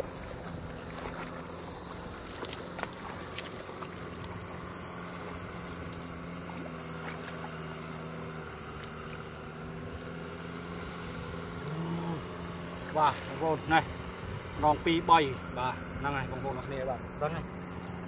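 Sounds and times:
hands splashing in muddy water: 0.0 - 9.7
tractor engine running: 0.0 - 18.0.

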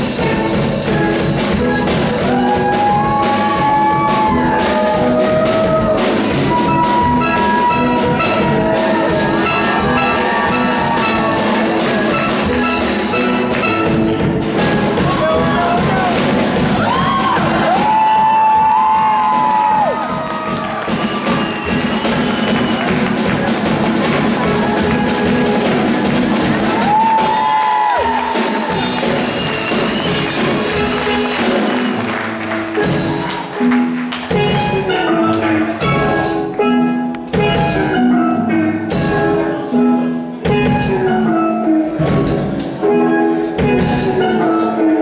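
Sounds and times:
steel pans playing: 0.0 - 16.9
drum beat: 0.0 - 35.1.

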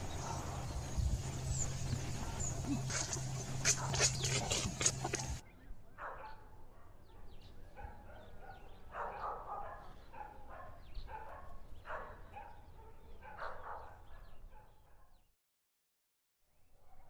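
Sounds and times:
low steady rumble: 0.0 - 5.4
small birds chirping: 0.0 - 15.3
dog barking: 0.1 - 0.8, 1.9 - 5.4, 6.0 - 15.2.

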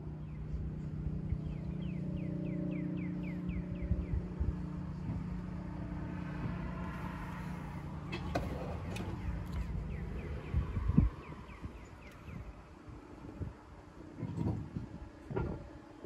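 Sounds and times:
steady low hum: 0.0 - 16.0
bird chirping: 0.2 - 4.3, 8.4 - 12.7.

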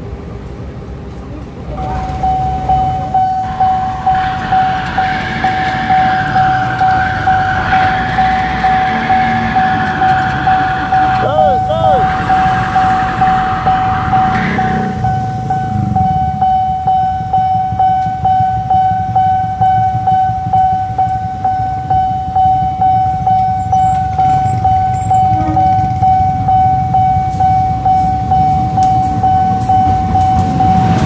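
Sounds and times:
low engine rumble: 0.0 - 31.0
crossing warning bell ringing: 1.7 - 31.0.

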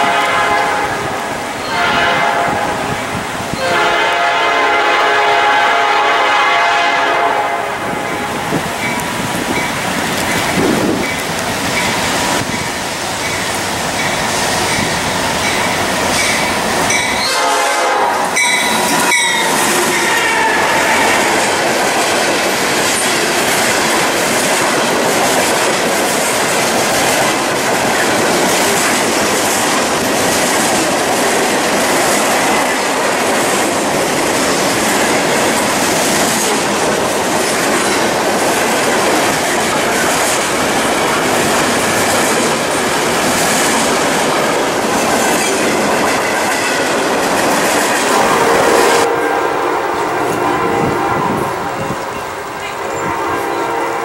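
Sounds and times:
train air horn: 0.0 - 8.5, 17.2 - 21.6, 48.1 - 54.0
freight train rumbling past: 0.0 - 54.0.

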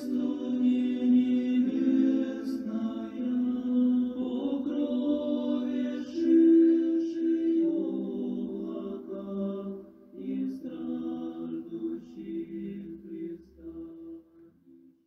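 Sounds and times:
slow chanting voices: 0.0 - 14.8.

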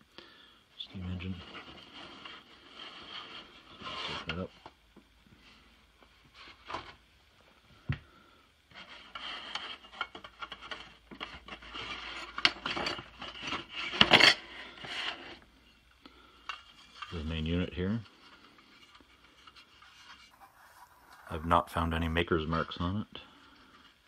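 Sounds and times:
cardboard scraping and rustling: 18.2 - 22.2.

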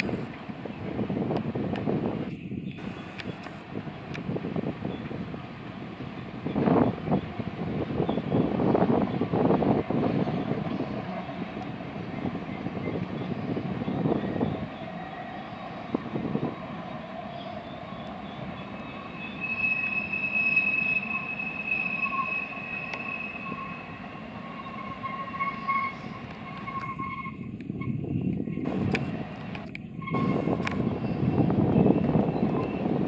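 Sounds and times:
steel wheels rumbling on rail: 0.0 - 33.0
high-pitched wheel squeal: 12.5 - 28.8, 30.0 - 33.0.

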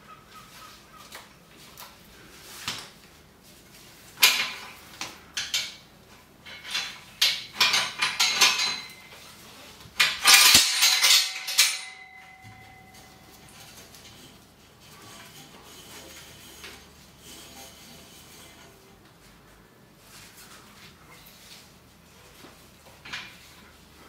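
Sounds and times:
metal chain clinking and rattling: 6.4 - 9.4, 10.0 - 14.4
short metallic ring: 10.2 - 14.3.

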